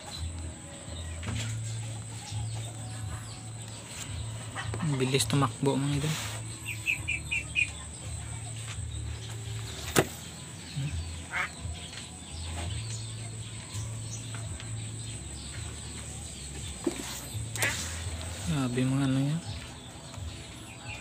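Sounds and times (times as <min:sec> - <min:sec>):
faint bird calls: 0:09.8 - 0:12.1.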